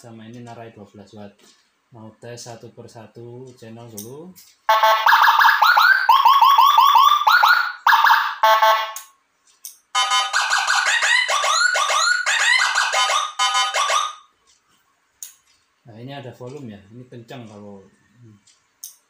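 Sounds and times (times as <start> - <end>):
electronic siren sweeps: 4.7 - 9.0, 10.0 - 14.3.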